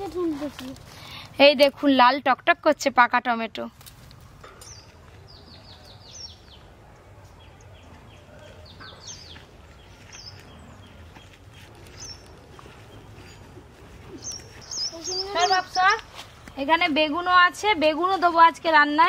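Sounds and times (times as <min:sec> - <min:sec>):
birds chirping: 0:04.4 - 0:19.0.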